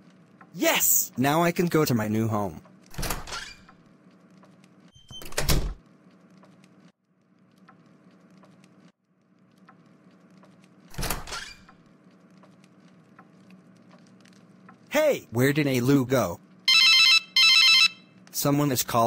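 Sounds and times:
door sound effect: 2.9s - 3.7s, 5.0s - 5.8s, 10.9s - 11.7s.

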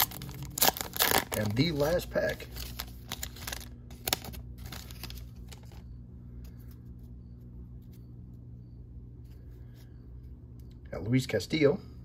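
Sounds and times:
foil wrapper rustling: 0.0s - 5.8s.

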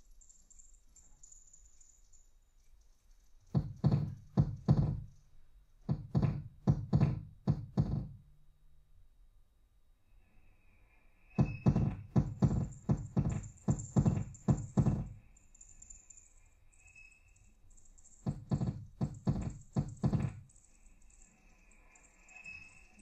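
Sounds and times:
thin steady tone: 0.0s - 3.5s, 9.4s - 23.0s
sharp amplified knocks: 3.5s - 5.1s, 5.9s - 8.2s, 11.4s - 15.2s, 18.2s - 20.5s
faint high hiss: 9.8s - 11.7s, 20.4s - 23.0s.

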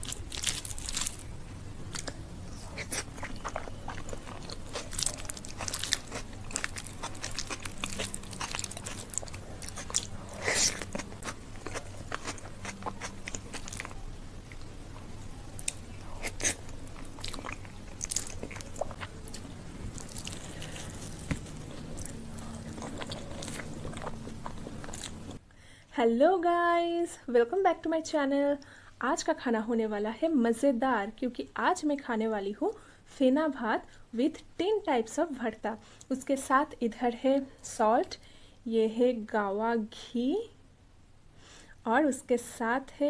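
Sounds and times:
close-miked wet chewing: 1.9s - 25.4s.

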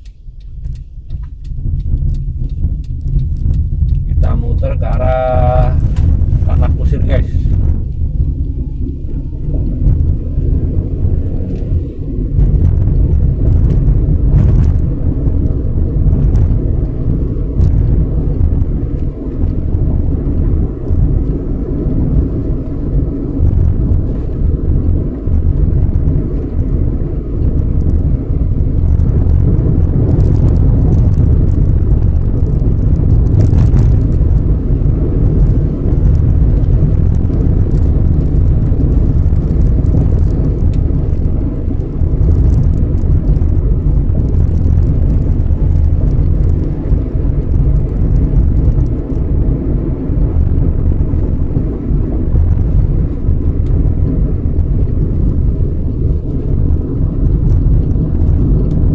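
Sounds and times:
faint ticks: 0.0s - 4.3s
car engine and tyre rumble: 0.0s - 58.9s.

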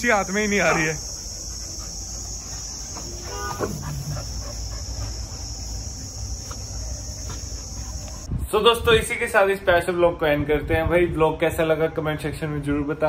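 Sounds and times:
crickets chirping: 0.0s - 9.2s.

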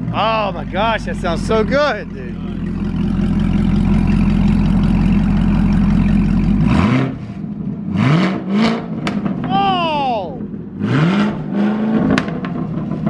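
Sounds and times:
car engine idling: 0.0s - 13.0s
engine throttle blips: 0.0s - 13.0s.

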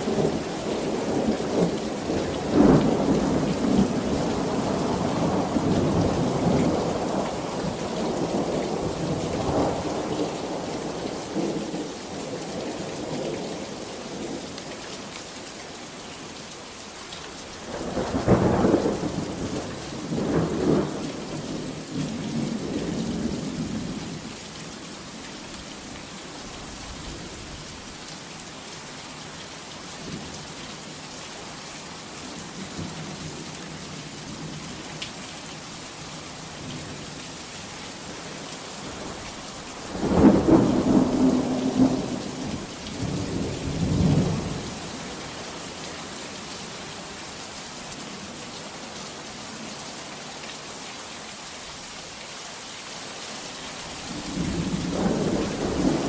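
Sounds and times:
heavy rain: 0.0s - 56.0s
thunder rumbling: 39.8s - 44.6s, 54.1s - 56.0s
thunderclaps: 54.2s - 56.0s.

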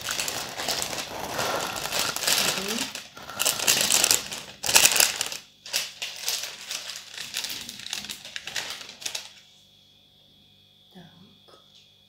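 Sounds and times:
cellophane crackling: 0.0s - 9.4s.

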